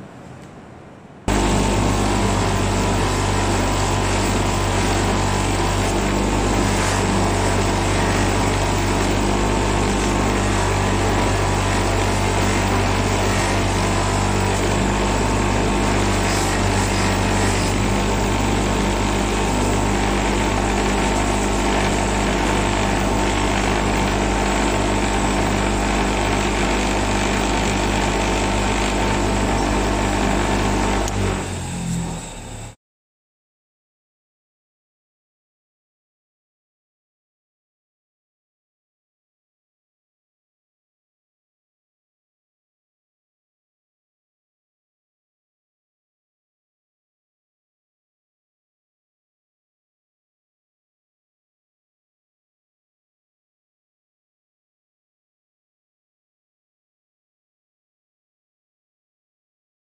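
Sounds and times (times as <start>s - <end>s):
bench grinder running: 1.3s - 32.8s.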